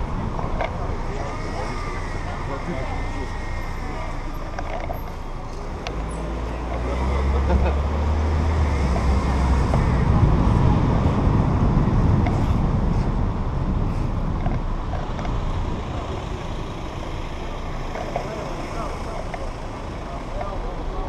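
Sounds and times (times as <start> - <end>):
wind rumbling on microphone: 0.0 - 1.4, 8.1 - 20.4
car engine: 0.0 - 21.0
tyres on wet road: 0.0 - 21.0.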